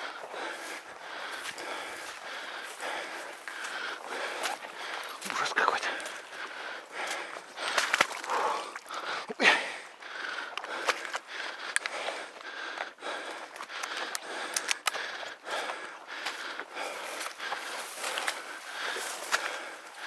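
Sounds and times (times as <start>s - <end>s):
footsteps: 0.0s - 6.3s, 15.5s - 19.8s
rustling of person walking: 0.0s - 8.7s, 10.6s - 20.0s
camera handling clicks and bumps: 13.8s - 15.0s.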